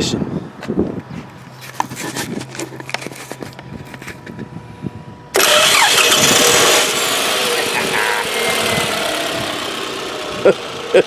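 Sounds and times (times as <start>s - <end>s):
engine cranking and starting: 5.4s - 11.0s.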